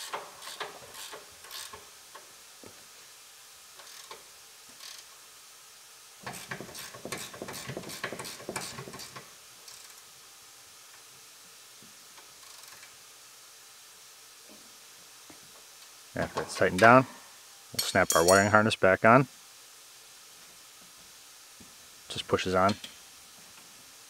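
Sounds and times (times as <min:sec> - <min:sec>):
hand ratchet clicking: 0:00.0 - 0:01.8, 0:03.8 - 0:04.2, 0:04.8 - 0:05.1.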